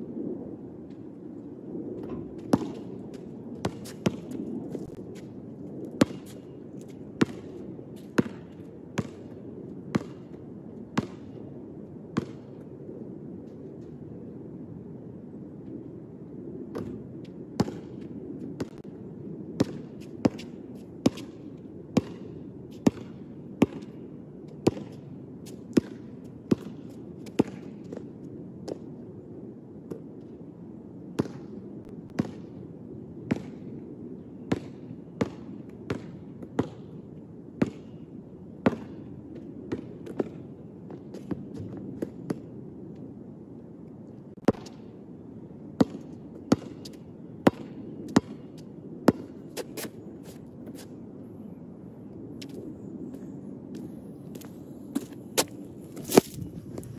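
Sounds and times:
basketball bouncing on hard court: 9.0s - 9.2s, 34.5s - 36.8s, 45.8s - 46.9s, 47.5s - 48.4s.

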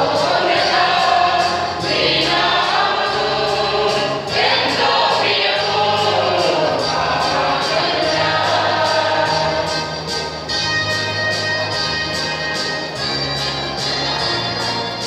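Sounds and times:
mixed choir singing: 0.0s - 10.3s, 13.9s - 15.0s.

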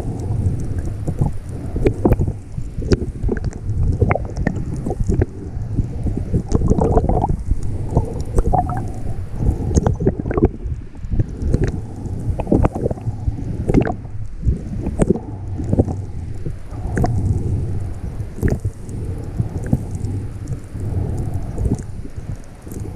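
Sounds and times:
clicks and crackles: 0.0s - 22.9s
muffled underwater sloshing: 0.0s - 22.9s.

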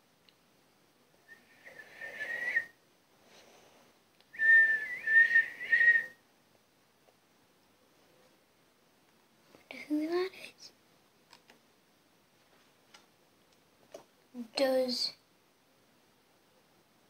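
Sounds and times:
person whistling: 1.3s - 2.8s, 4.4s - 6.2s.

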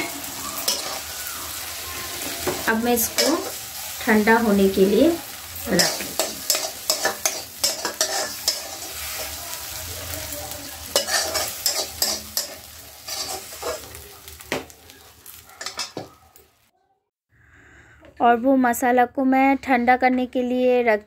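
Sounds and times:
metal spatula scraping a pan: 0.0s - 14.0s, 15.2s - 16.2s
tomatoes sizzling in a pan: 0.0s - 16.7s.

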